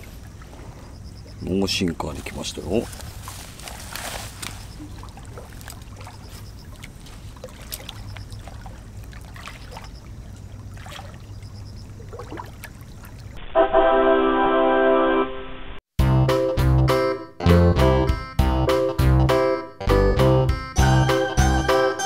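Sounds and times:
low outdoor hum: 0.0 - 13.4.

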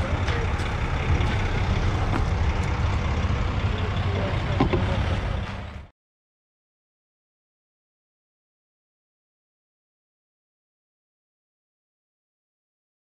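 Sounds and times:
diesel engine running: 0.0 - 5.9.

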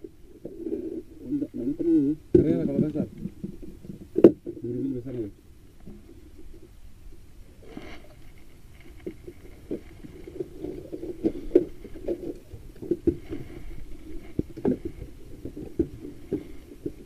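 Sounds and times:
water lapping against hull: 7.4 - 17.0.

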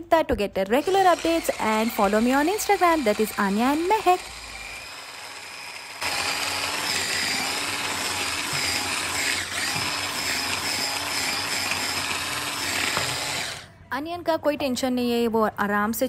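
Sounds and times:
blades chopping vegetables: 0.8 - 13.6
electric chopper motor whining: 0.8 - 13.7.

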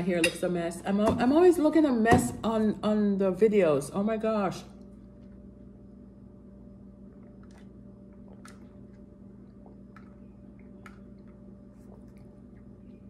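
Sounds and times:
low hum: 0.0 - 13.0
soft eating clicks: 7.1 - 13.0.

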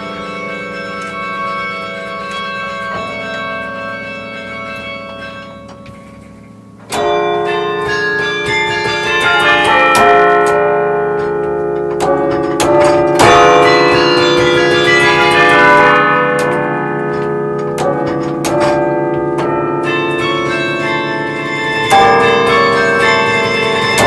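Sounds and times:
carillon bells: 0.0 - 24.0.

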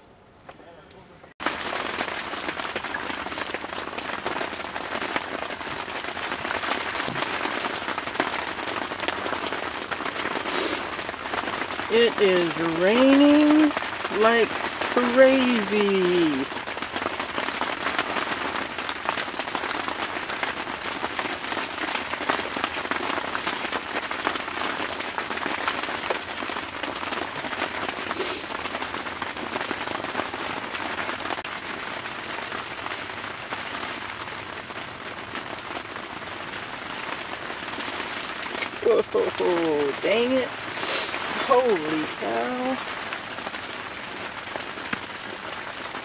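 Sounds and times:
heavy rain on fabric: 0.0 - 46.0.

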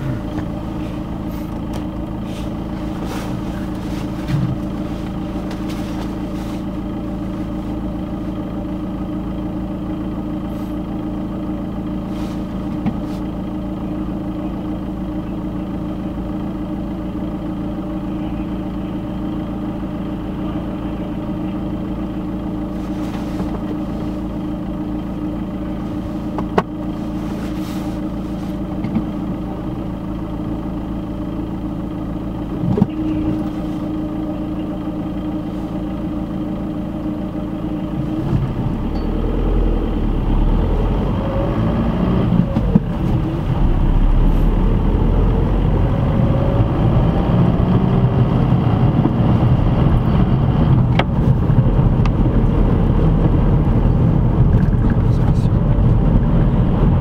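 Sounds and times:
car engine idling: 0.0 - 57.0
road noise: 0.0 - 57.0
car engine speeding up: 38.0 - 57.0.

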